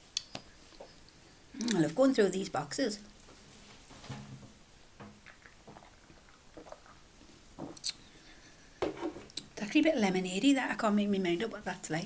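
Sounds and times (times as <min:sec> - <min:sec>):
small eating sounds: 0:00.1 - 0:02.0, 0:05.1 - 0:09.6
faint clicks and rustles: 0:03.2 - 0:09.5
sipping from drink can: 0:05.2 - 0:07.2.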